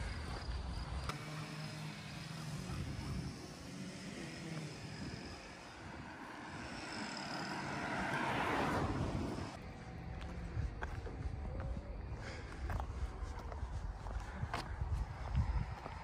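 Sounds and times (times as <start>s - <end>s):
car driving past: 4.2s - 10.3s.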